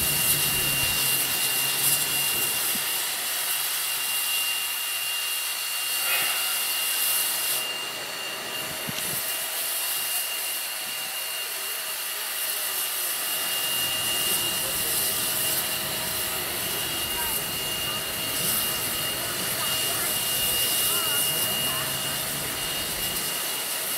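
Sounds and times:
steam locomotive hissing: 0.0 - 23.9
thin high tone: 13.3 - 23.7.

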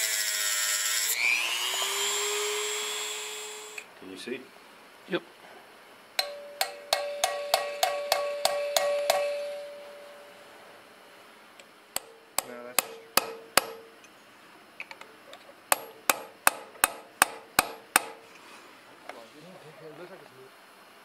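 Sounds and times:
hammer striking chisel on metal: 6.2 - 10.3, 12.0 - 13.9, 15.7 - 18.2
metal ringing tone: 6.2 - 10.6.

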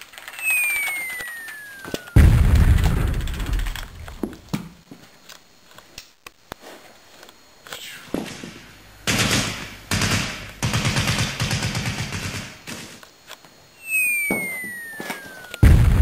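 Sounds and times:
gunfire cracks and bursts: 0.4 - 4.2, 9.1 - 12.7, 15.0 - 16.0.

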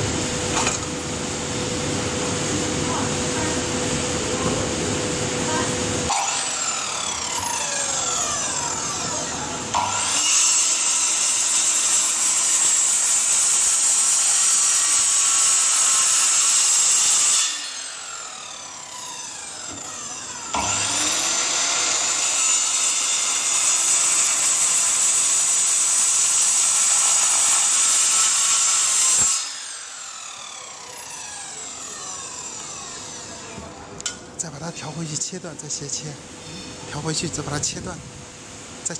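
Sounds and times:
circular saw cutting wood: 6.1 - 33.8
saw motor spinning down: 6.1 - 33.8.

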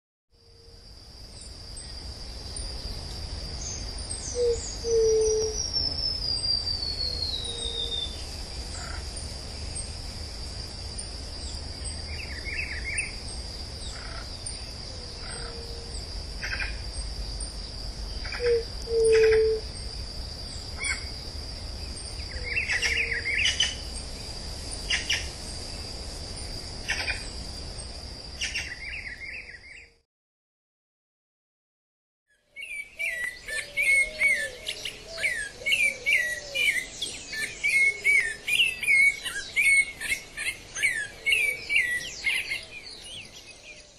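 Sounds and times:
high insect buzz: 0.5 - 29.6.

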